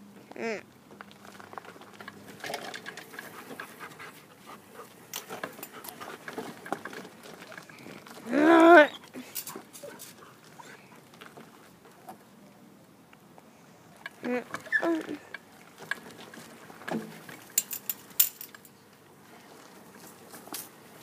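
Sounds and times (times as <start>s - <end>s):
dog panting: 3.1s - 6.6s
dog whining: 8.3s - 10.0s, 14.4s - 15.2s.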